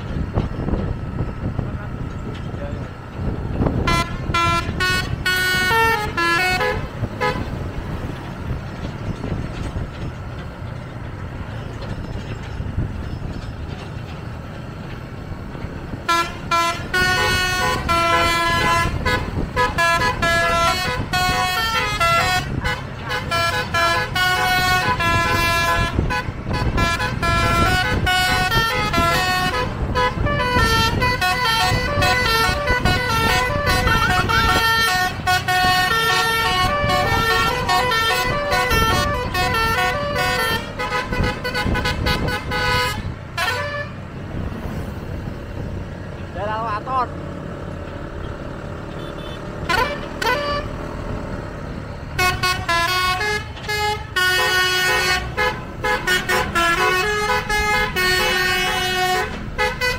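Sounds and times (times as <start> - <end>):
engine and road noise: 0.0 - 59.9
bus horn playing tune: 3.6 - 8.1, 15.9 - 44.2, 48.8 - 51.0, 52.0 - 59.9.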